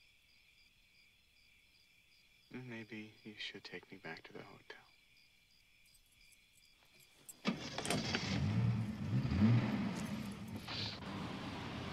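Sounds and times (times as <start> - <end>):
car engine starting and revving: 7.4 - 11.9.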